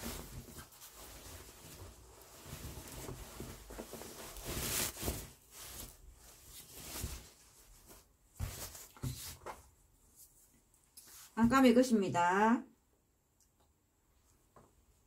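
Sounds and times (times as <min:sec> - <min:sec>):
fabric rustling and swishing: 0:00.0 - 0:11.4.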